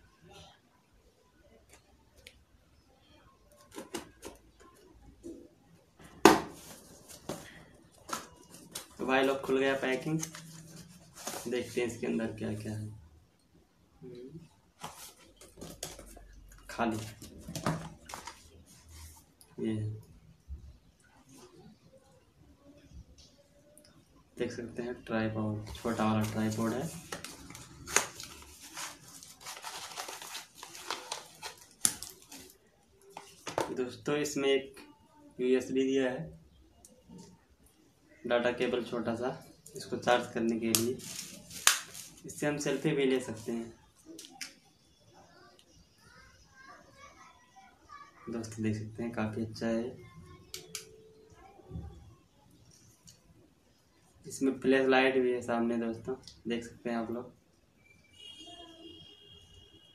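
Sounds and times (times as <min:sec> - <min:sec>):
packaging crinkling and rustling: 0:06.5 - 0:11.8, 0:25.7 - 0:33.7, 0:40.7 - 0:42.3.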